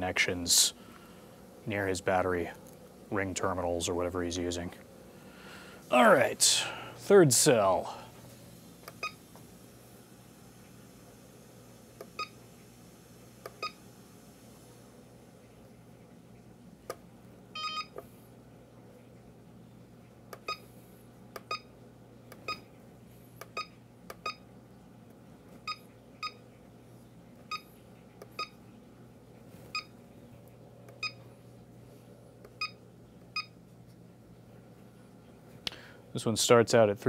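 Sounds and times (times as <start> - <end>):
battery charger beeps: 12.2 - 12.4, 17.6 - 18.0, 29.7 - 29.9, 31.0 - 31.2.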